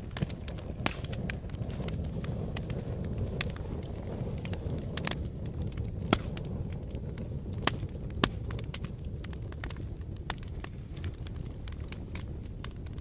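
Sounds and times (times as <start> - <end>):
fire crackles and pops: 0.0 - 13.0
wood fire rumbling: 0.0 - 13.0.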